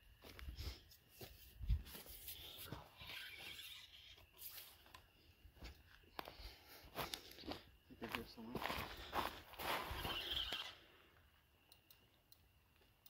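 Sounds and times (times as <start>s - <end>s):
footsteps through dry grass: 5.6s - 10.6s.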